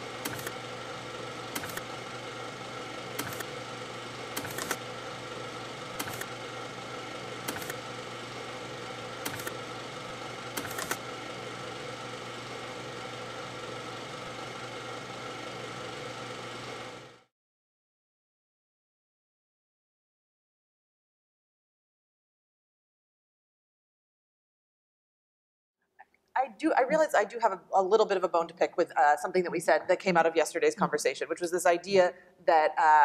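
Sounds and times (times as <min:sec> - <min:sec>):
sharp clicks: 0:03.2 - 0:03.5, 0:06.0 - 0:06.3, 0:07.5 - 0:07.8.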